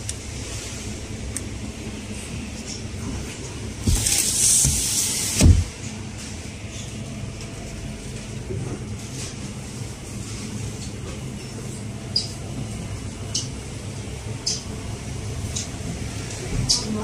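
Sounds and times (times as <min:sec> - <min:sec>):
freezer cases humming: 0:00.0 - 0:17.0
loud hiss: 0:03.8 - 0:05.7
dull thump: 0:05.4 - 0:05.7.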